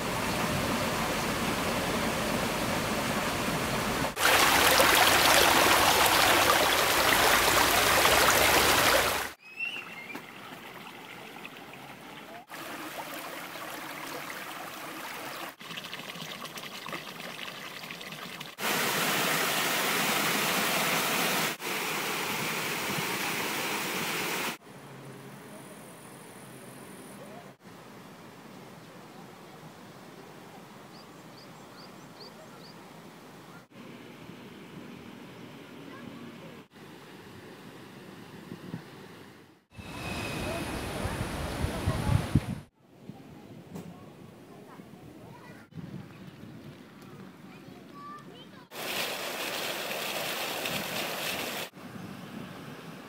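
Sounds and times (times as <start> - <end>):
running water rushing: 0.0 - 24.6, 48.7 - 51.8.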